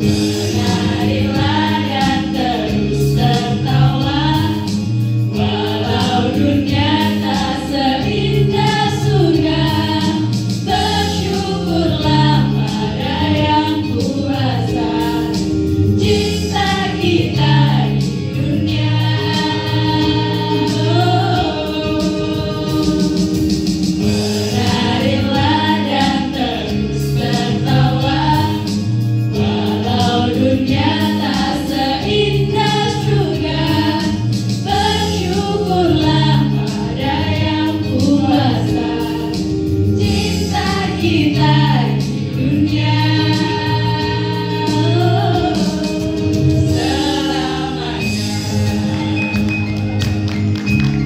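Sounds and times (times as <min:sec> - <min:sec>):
group of voices singing: 0:00.0 - 0:49.9
instrumental backing with bass: 0:00.0 - 0:51.0.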